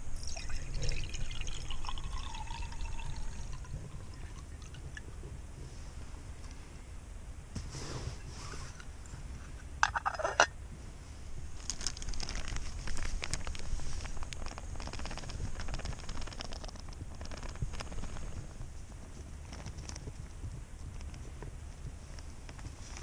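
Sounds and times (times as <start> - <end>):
ground coffee pouring: 0.0 - 5.1, 11.6 - 18.4
plastic bag crinkling: 11.6 - 18.4.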